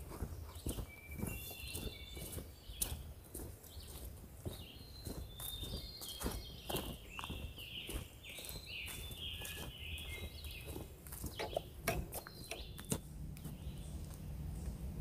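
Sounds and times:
footsteps crunching on leaf litter: 0:00.0 - 0:14.8
birds singing: 0:00.0 - 0:15.0
low rumble: 0:12.8 - 0:15.0.

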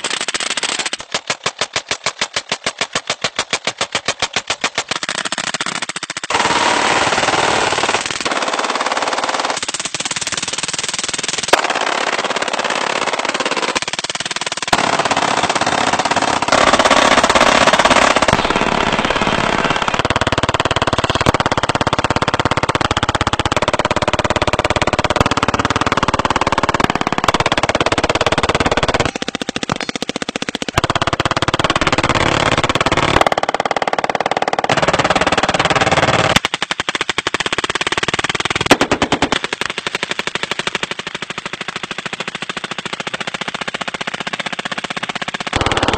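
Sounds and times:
rapid automatic gunfire: 0:00.0 - 0:45.9
quick gunshot pops: 0:21.0 - 0:21.8.

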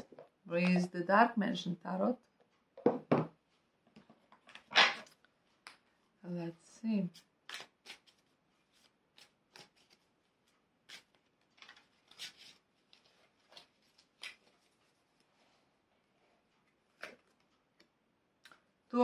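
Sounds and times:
cards shuffling: 0:07.2 - 0:10.1.

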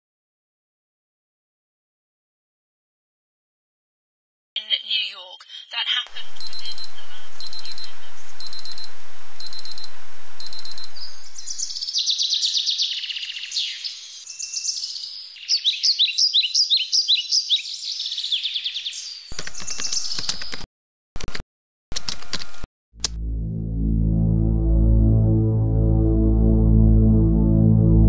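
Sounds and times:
digital alarm clock beeping: 0:06.2 - 0:11.2
birds chirping: 0:10.8 - 0:20.6
music: 0:23.1 - 0:28.0.

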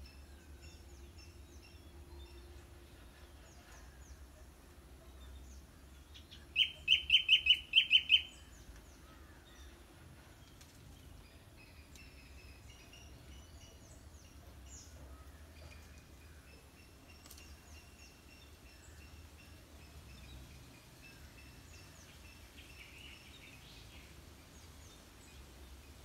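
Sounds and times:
birds chirping and whistling: 0:06.3 - 0:08.6.

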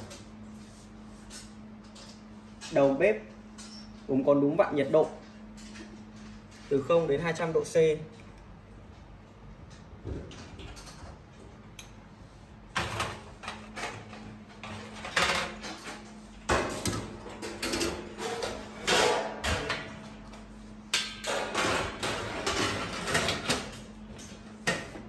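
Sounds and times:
metal fryer baskets clanking: 0:12.7 - 0:25.0.

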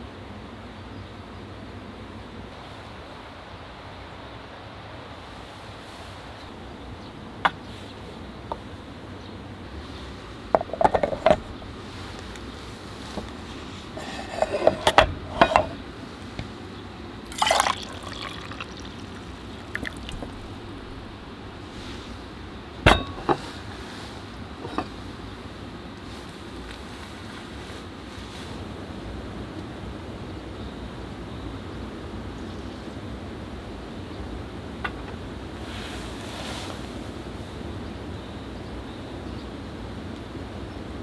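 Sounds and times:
wind-like hiss: 0:00.0 - 0:41.0
metal mugs clinking: 0:10.6 - 0:11.9, 0:14.0 - 0:15.8, 0:17.3 - 0:22.1, 0:22.9 - 0:23.5, 0:24.6 - 0:25.0
coffee pouring into mug: 0:17.3 - 0:22.1.

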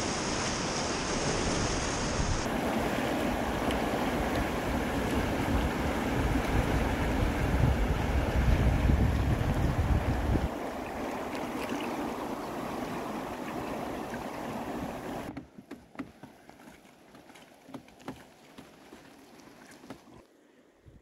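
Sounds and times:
light water splashes: 0:00.0 - 0:07.7, 0:10.1 - 0:20.4
river water rushing over rapid: 0:00.0 - 0:15.3
flowing water: 0:00.0 - 0:20.4
small knocks: 0:15.3 - 0:16.7.

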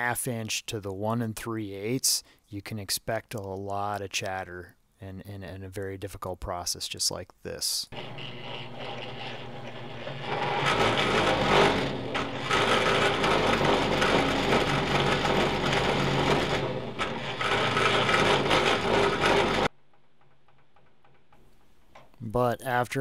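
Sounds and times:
drill bit grinding steel: 0:07.9 - 0:19.7
motor hum: 0:07.9 - 0:19.7.

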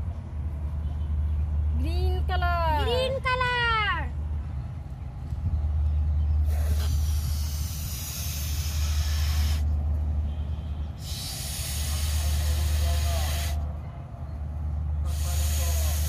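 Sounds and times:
steady low rumble: 0:00.0 - 0:16.0
breath blowing up balloon: 0:06.4 - 0:09.7, 0:11.0 - 0:13.6, 0:15.1 - 0:16.0.

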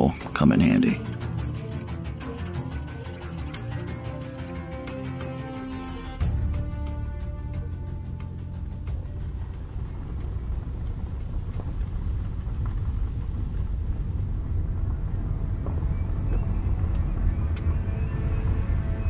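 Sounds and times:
faint evenly spaced ticks: 0:00.0 - 0:17.7
low steady rumble: 0:06.3 - 0:19.0.

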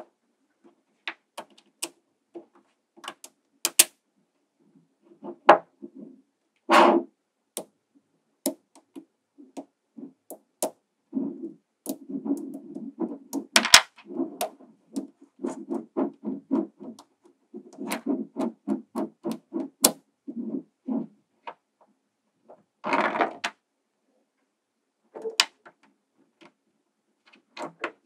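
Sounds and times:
magnetic balls clicking: 0:03.0 - 0:03.9, 0:11.8 - 0:20.0.

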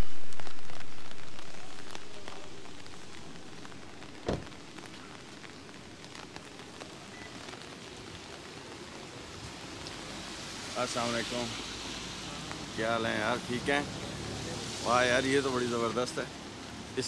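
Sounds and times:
rain on a wet street: 0:00.0 - 0:17.0
dull thump: 0:04.2 - 0:04.6.

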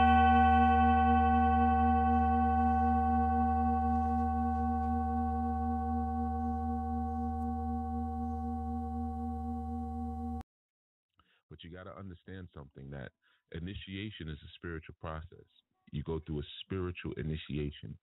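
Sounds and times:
low steady hum: 0:00.0 - 0:10.4
singing bowl ringing: 0:00.0 - 0:10.4.

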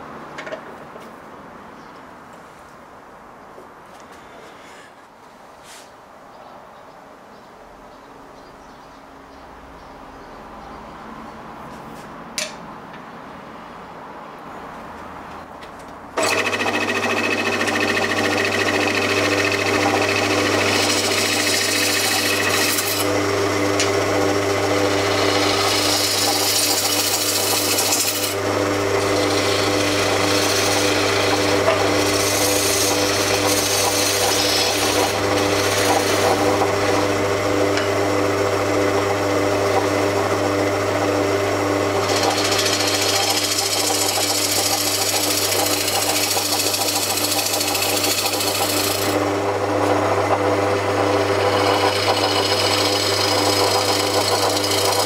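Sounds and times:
gouge scraping spinning wood: 0:16.2 - 0:55.0
wood lathe motor hum: 0:16.2 - 0:55.0.

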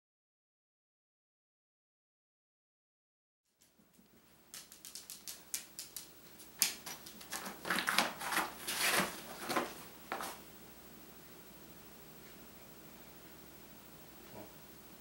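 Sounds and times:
dog moving on nylon bag: 0:07.1 - 0:10.4.

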